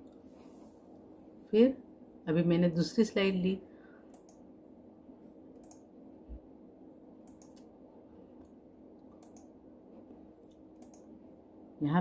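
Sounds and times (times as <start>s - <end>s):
low steady hum: 0.0s - 12.0s
computer mouse clicking: 4.1s - 4.4s, 5.5s - 5.9s, 7.2s - 7.7s, 8.4s - 9.6s, 10.4s - 11.1s.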